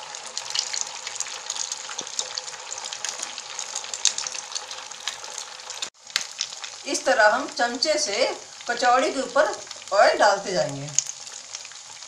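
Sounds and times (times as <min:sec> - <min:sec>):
deep-frying sizzle: 0:00.0 - 0:12.0
oil crackling pops: 0:00.3 - 0:06.8.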